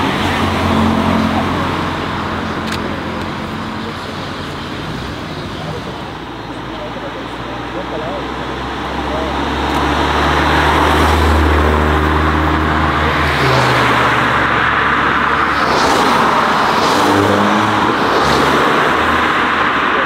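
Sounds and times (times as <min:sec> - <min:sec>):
cars driving past: 0:00.0 - 0:20.0
loud rushing noise: 0:08.4 - 0:20.0.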